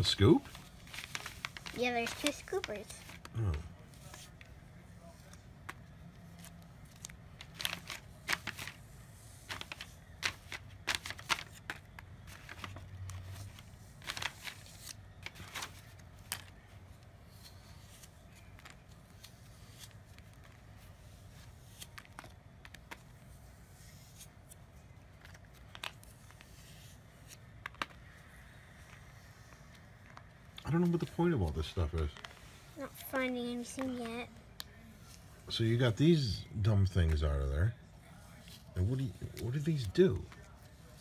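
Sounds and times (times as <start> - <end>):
packaging rustling: 0.0 - 3.4, 5.0 - 8.8, 9.4 - 16.7.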